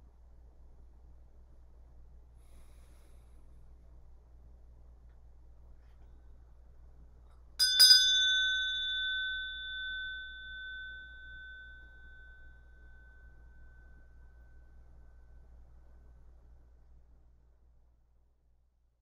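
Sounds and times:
meditation bell ringing: 7.6s - 16.0s.

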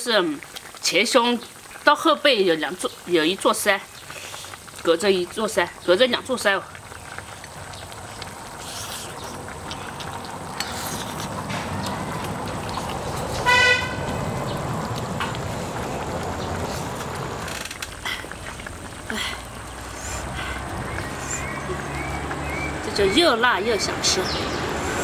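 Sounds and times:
vehicle passing rumble: 6.6s - 25.0s
short horn toot: 13.4s - 14.0s.

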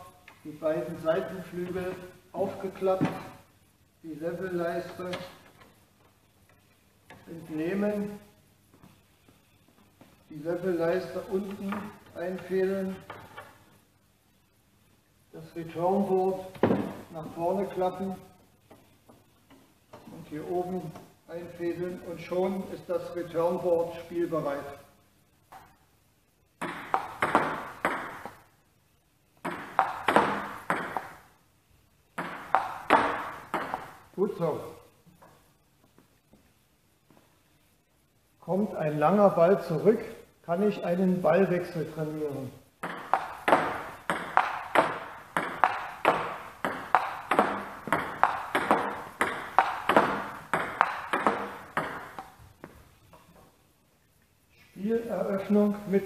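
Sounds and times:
table tennis ball clicking: 29.4s - 31.2s, 32.2s - 33.9s, 42.8s - 52.4s.

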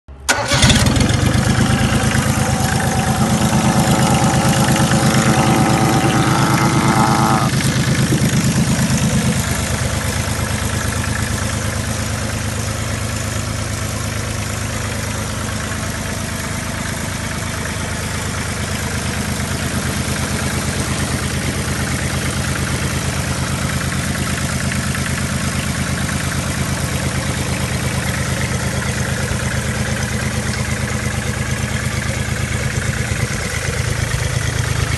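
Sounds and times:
diesel engine starting and idling: 0.1s - 34.9s.

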